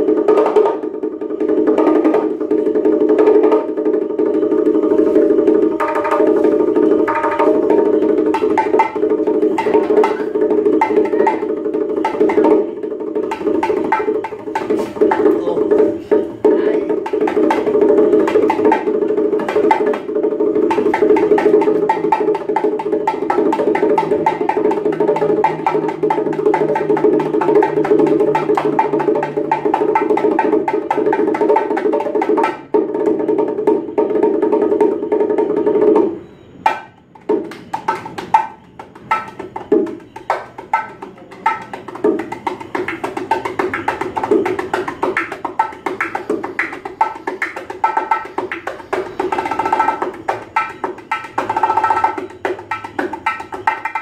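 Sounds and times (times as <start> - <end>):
bongos played by hand: 0.0 - 54.0.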